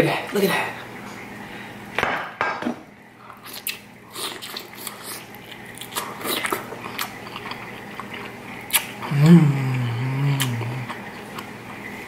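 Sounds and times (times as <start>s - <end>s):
person chewing with wet smacks: 3.2s - 12.0s.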